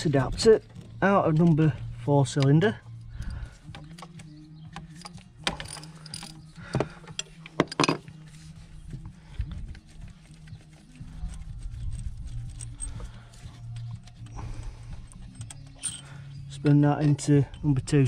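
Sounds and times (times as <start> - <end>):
metallic clicking and knocks: 3.6 - 8.1, 15.0 - 17.8.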